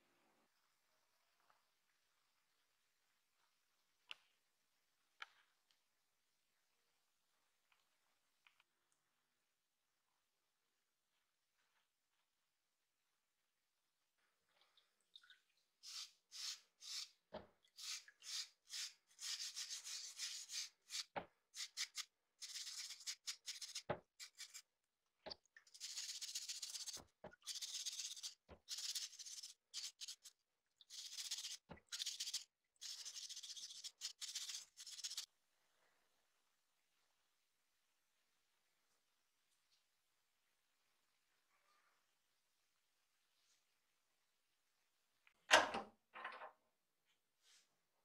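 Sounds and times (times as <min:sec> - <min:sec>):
hand brush scrubbing metal: 0:17.8 - 0:24.7, 0:25.7 - 0:35.3.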